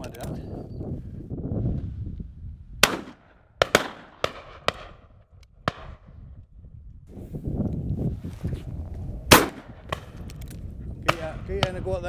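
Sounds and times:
wind rumble on microphone: 0.0s - 12.0s
shotgun shots: 2.8s - 5.0s, 9.3s - 10.2s, 11.1s - 11.8s.

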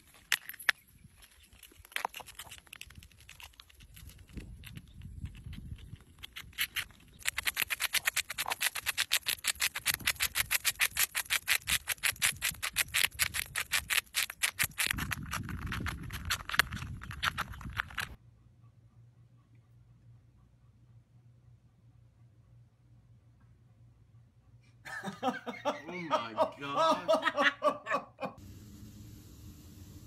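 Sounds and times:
squirrel gnawing on a nut: 0.0s - 18.2s.

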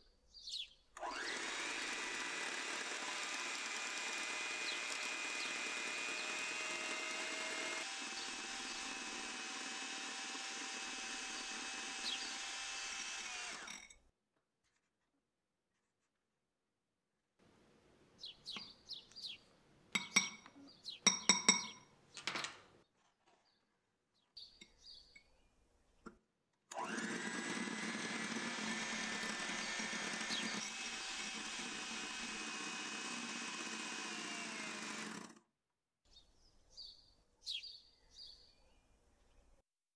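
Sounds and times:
electric hand mixer whipping: 1.0s - 13.8s, 26.7s - 35.4s.

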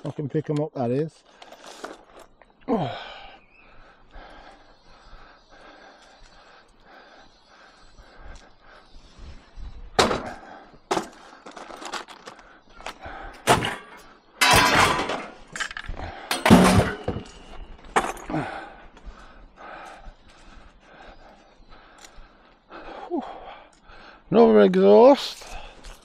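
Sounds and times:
scrap metal clattering: 13.5s - 18.2s.

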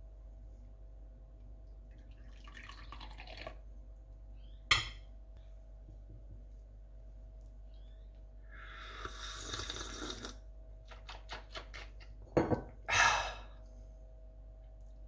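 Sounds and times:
hiss: 8.9s - 10.3s
cup knocking on iron saucer: 12.3s - 12.7s.

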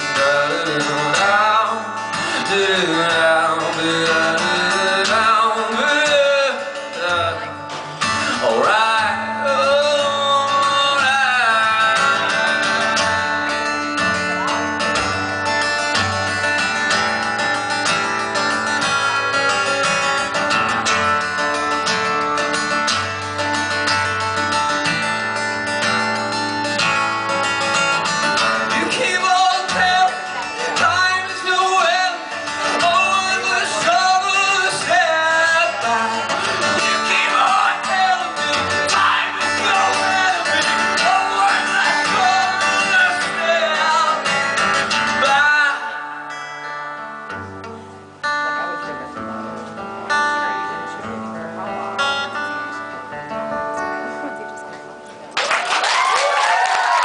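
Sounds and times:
man singing: 0.0s - 16.0s, 28.2s - 46.4s
acoustic guitar strumming: 0.0s - 55.4s.

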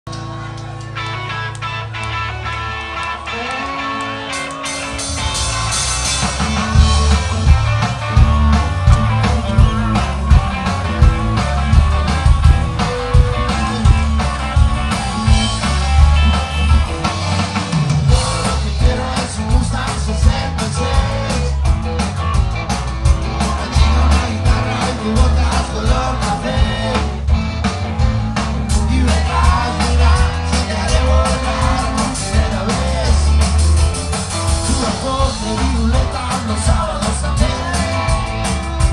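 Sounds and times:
bass guitar: 0.0s - 38.9s
drums: 0.1s - 38.9s
electric guitars: 0.1s - 38.9s
person singing: 18.1s - 21.7s, 23.2s - 27.2s, 28.7s - 33.6s, 34.6s - 38.4s.

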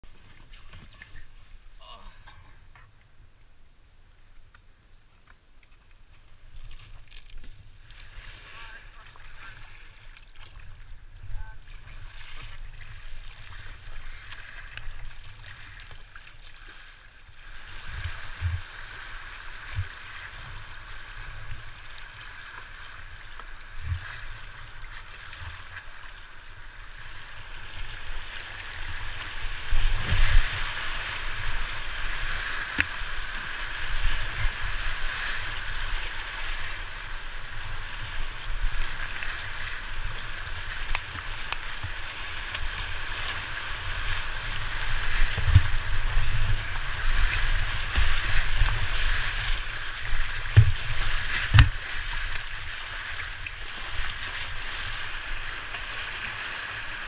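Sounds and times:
river water rushing and splashing: 6.3s - 57.0s
low thumps on microphone: 50.5s - 51.8s.

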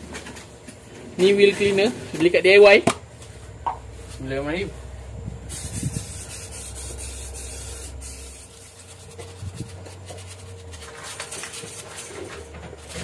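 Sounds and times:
aerosol spray hissing: 5.5s - 10.7s
stiff brush scrubbing: 5.5s - 12.2s.

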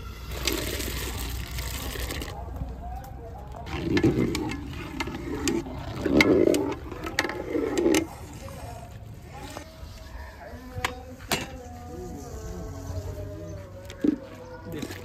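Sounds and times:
metal skimmer scraping pot: 0.0s - 2.3s, 3.7s - 8.7s
liquid sloshing: 0.3s - 2.4s, 3.6s - 8.8s.

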